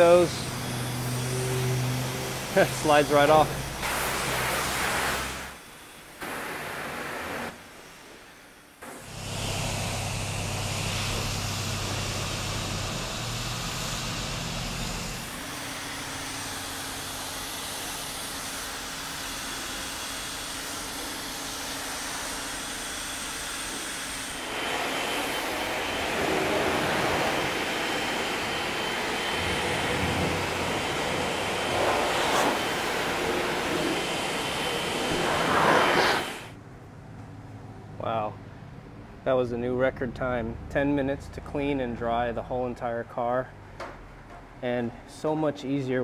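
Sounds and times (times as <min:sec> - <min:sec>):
motor drone: 0:00.0 - 0:06.4, 0:08.6 - 0:36.6
rushing spray: 0:02.4 - 0:05.6, 0:24.4 - 0:36.5.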